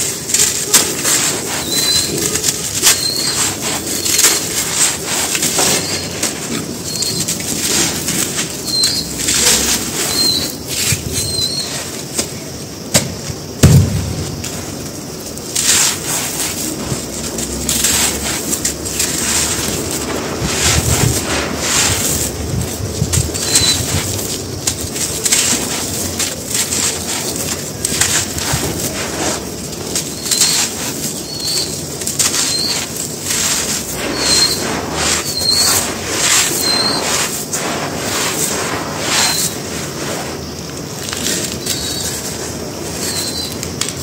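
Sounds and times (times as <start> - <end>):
crunching of powder balls: 0.0 - 44.0
dust pouring hiss: 0.0 - 44.0
bird chirps: 1.6 - 4.4, 8.6 - 11.8
heavy thump: 12.9 - 14.4.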